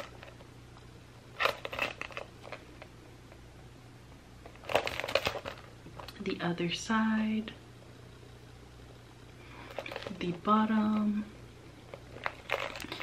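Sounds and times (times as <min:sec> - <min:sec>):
faint low hum: 0:00.0 - 0:13.0
pouch rustling and clicking: 0:01.4 - 0:02.6, 0:04.5 - 0:06.1, 0:11.9 - 0:13.0.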